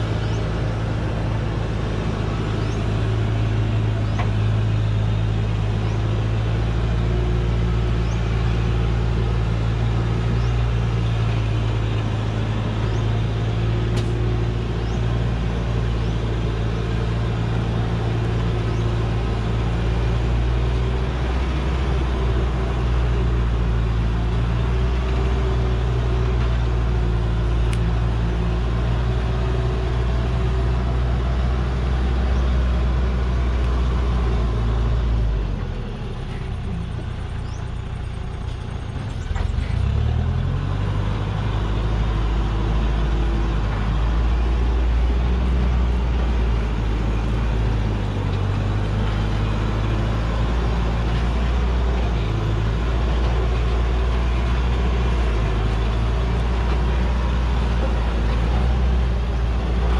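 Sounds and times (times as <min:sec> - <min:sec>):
diesel truck engine under load: 0:00.0 - 0:59.9.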